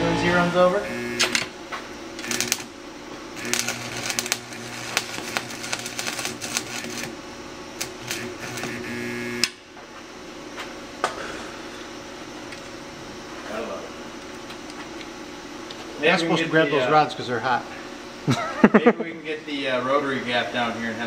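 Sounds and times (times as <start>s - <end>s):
welder buzz: 0.0s - 9.8s
welding arc crackling: 0.3s - 9.6s.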